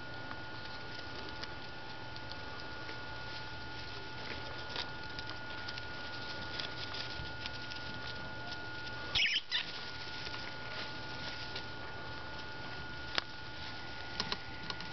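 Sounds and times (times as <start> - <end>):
small ticking and scratching in bedding: 0.1 - 14.9
shrill lemming squeak: 9.2 - 9.7.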